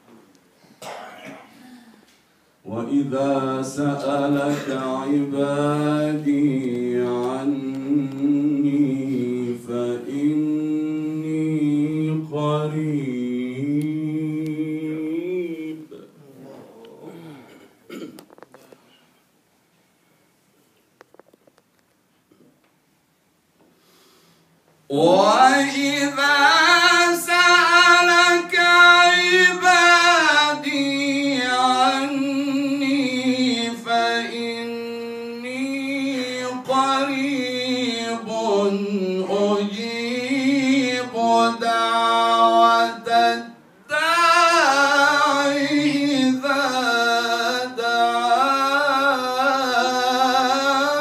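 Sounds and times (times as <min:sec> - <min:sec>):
man chanting melodically: 0:02.6 - 0:17.4, 0:24.9 - 0:51.0
man breathing: 0:23.6 - 0:24.6.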